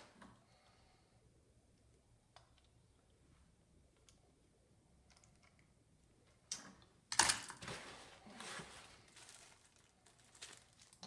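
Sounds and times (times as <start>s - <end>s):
plastic bag crinkling and rattling: 7.2s - 11.0s.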